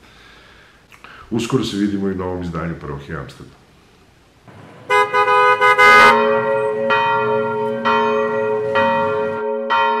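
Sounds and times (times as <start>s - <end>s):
church bell ringing: 4.5s - 10.0s.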